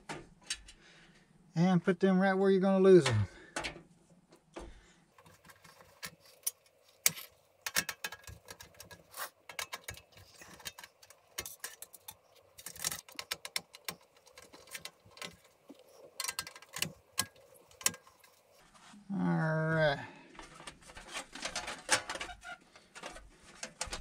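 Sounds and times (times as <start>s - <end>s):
metal screws and panel rattling: 5.2s - 18.6s, 21.0s - 24.0s.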